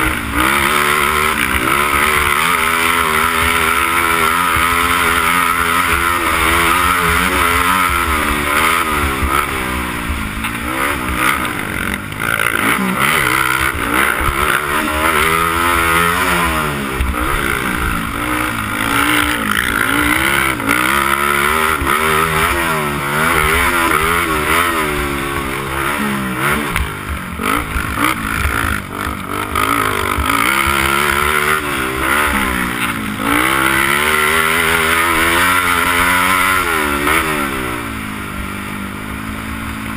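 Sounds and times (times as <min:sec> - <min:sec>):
quad engine revving: 0:00.0 - 0:39.9.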